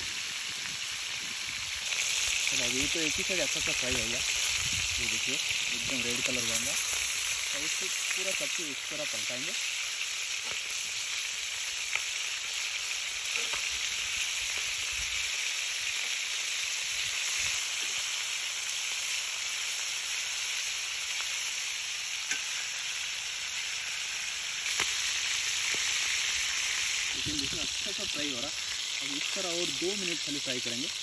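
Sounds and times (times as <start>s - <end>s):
chicken sizzling in hot oil: 0.0s - 31.0s
metal tongs clicking on pan: 22.3s - 22.6s.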